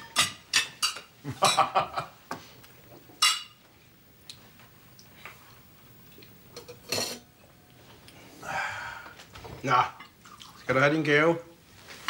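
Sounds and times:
tableware clinking: 0:00.0 - 0:01.9, 0:03.2 - 0:03.6, 0:06.5 - 0:07.4.

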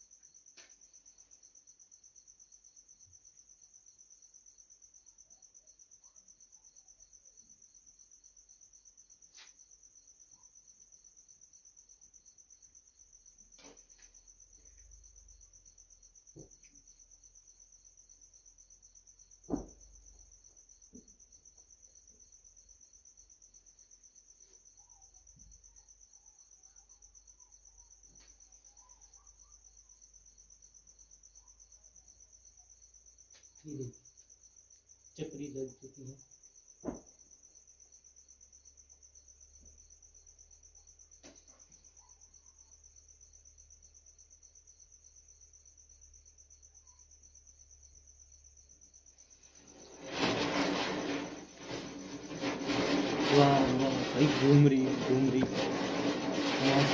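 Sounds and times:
crickets chirping: 0:00.0 - 0:56.9
sharp thump: 0:19.5 - 0:19.9, 0:36.8 - 0:37.1
soft knocks: 0:19.5 - 0:19.9, 0:36.8 - 0:37.2.

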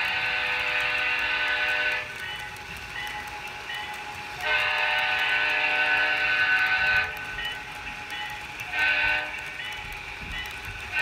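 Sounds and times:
model locomotive horn blasts: 0:00.0 - 0:02.2, 0:04.4 - 0:07.3, 0:08.7 - 0:09.6.

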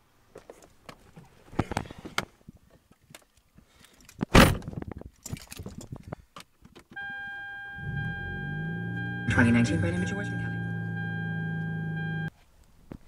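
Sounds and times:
keys jangling: 0:05.2 - 0:05.9
car warning chime: 0:07.0 - 0:12.3
car engine starting: 0:07.8 - 0:12.3.

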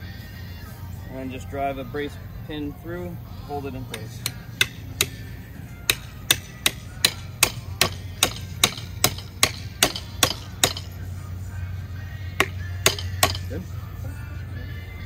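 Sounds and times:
hammer striking steel pin: 0:03.9 - 0:05.3, 0:05.9 - 0:11.0, 0:12.4 - 0:13.6.

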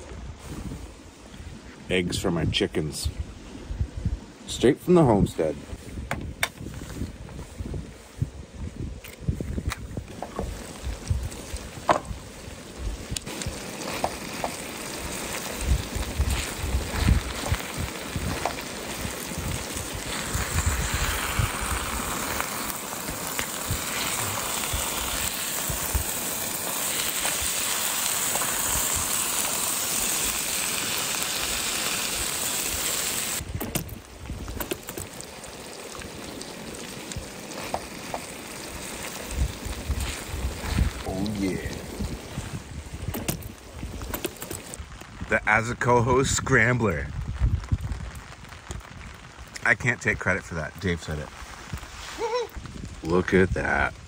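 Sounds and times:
food sizzling in a frying pan: 0:10.3 - 0:33.4, 0:34.4 - 0:45.3
low rumbles: 0:33.4 - 0:49.8.

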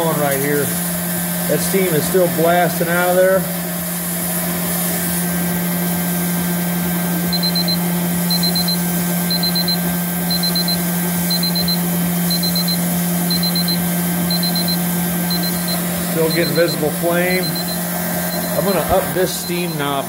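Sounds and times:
low hum with hiss: 0:07.2 - 0:20.0
thermometer alarm beeping: 0:07.2 - 0:20.0.

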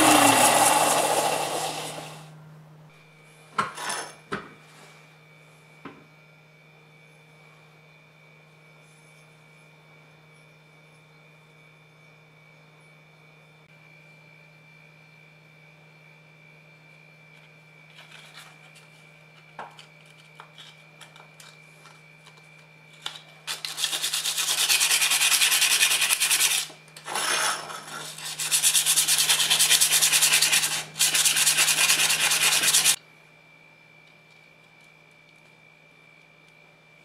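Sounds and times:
sandpaper rasping on metal: 0:23.5 - 0:33.0.

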